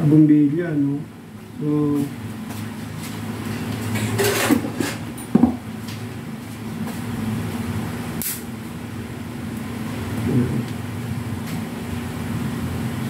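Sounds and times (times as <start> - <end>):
steady low hum: 0.0 - 13.0
sharp click: 8.2 - 8.4.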